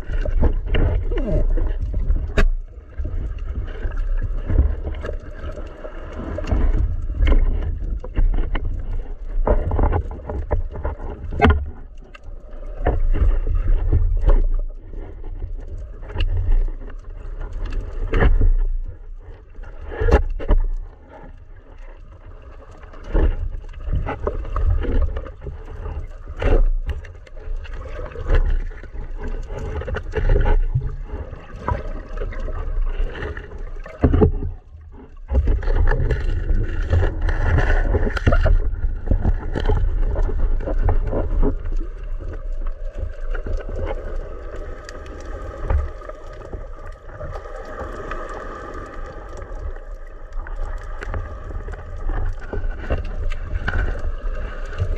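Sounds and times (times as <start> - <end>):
knocks and bumps underwater: 0.0 - 54.9
muffled underwater water rumble: 0.0 - 54.9.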